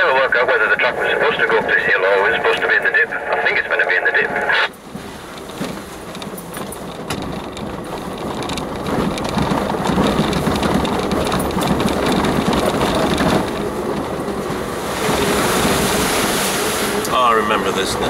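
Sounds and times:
off-road vehicle engine: 0.0 - 18.0
tyres on muddy track: 0.0 - 18.0
clicks and knocks from rough ground: 4.8 - 14.2.

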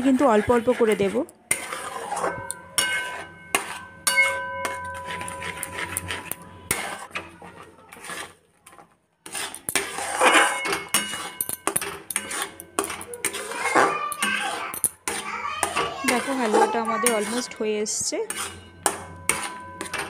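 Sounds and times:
spatula scraping metal pan: 0.0 - 20.0
metal pan ringing: 2.0 - 7.0, 10.1 - 15.1, 15.7 - 20.0.

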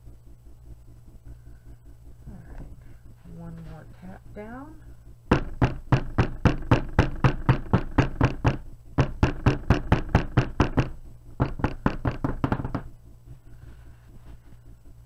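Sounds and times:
wooden mould knocking on table: 5.3 - 12.9.

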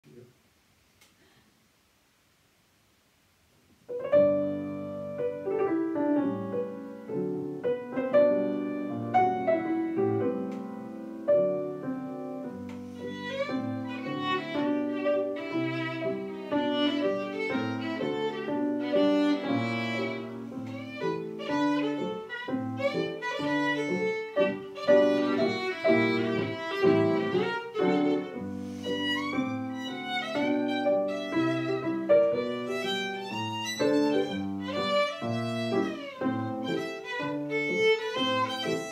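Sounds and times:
grand piano playing a rag: 3.9 - 38.9
violin playing: 12.8 - 38.9.

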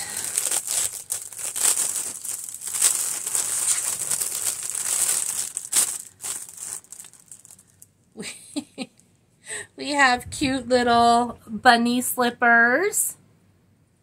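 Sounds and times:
cellophane bag crinkling: 0.0 - 8.0.

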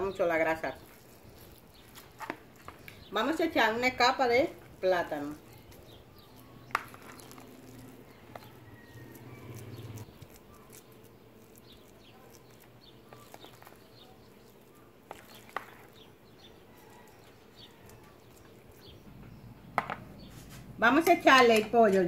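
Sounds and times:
spoon spreading mash in dish: 0.4 - 3.1, 5.3 - 19.0.

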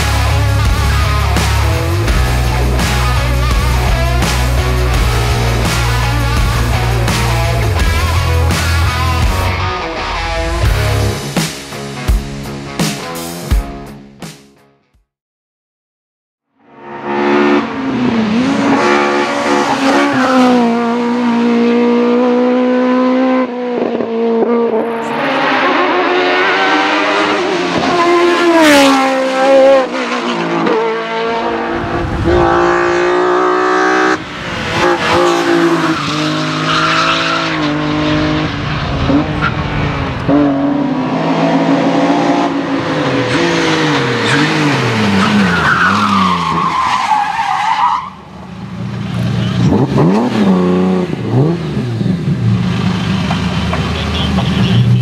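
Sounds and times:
race cars accelerating hard: 17.0 - 55.0.

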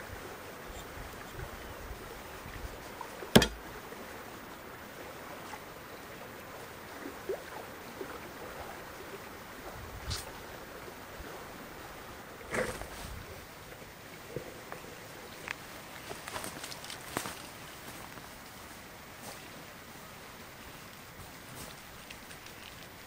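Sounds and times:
hatchet chopping log: 3.4 - 3.7
outdoor hiss: 9.6 - 23.0.

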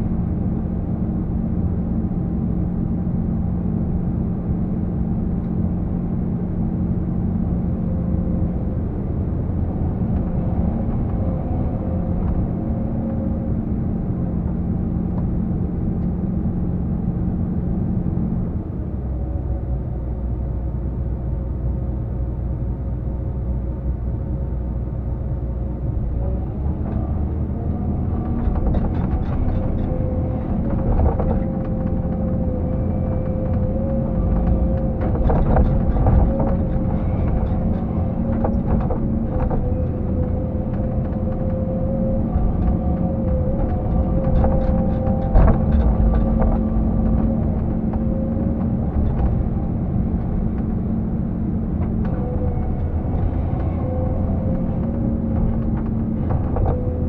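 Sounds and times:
excavator diesel engine running: 0.0 - 57.0
machine knocks and clanks: 42.6 - 49.6.

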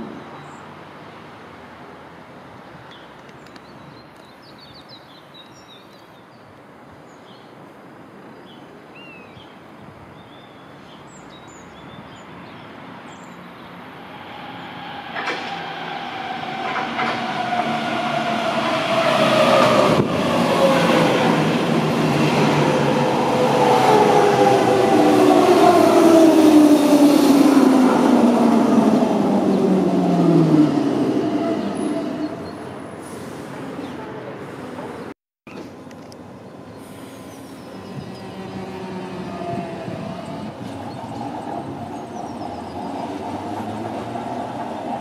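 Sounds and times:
train rumble: 14.1 - 35.0, 36.8 - 45.0
wheels clacking over rail joints: 14.9 - 22.3
birds chirping: 36.4 - 45.0.

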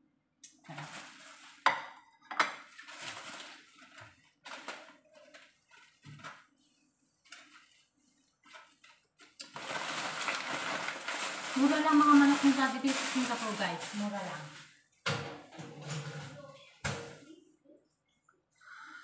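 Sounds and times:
aluminium foil crinkling: 0.5 - 14.8.

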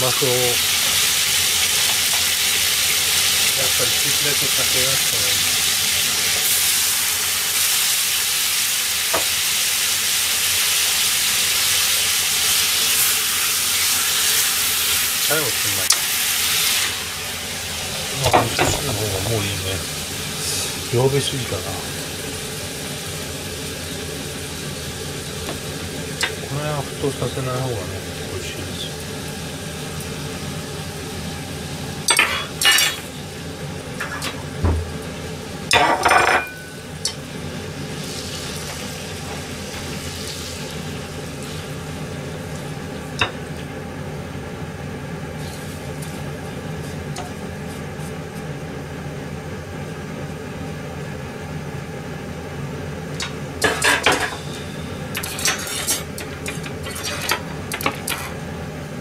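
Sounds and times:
steady hum: 13.5 - 59.0.

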